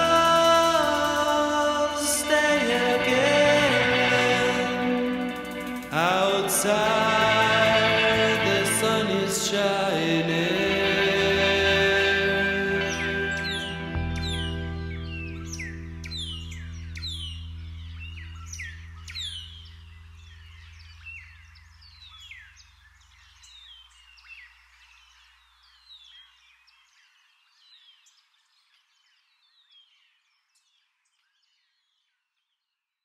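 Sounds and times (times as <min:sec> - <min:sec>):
held low chord: 0:00.0 - 0:21.5
birds chirping: 0:00.0 - 0:31.0.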